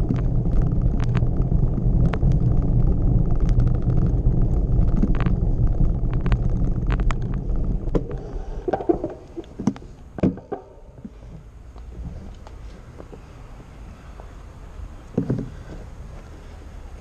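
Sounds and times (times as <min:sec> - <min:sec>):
low rumble: 0:00.0 - 0:17.0
wind buffeting: 0:00.0 - 0:17.0
rattling clicks and knocks: 0:07.9 - 0:11.2.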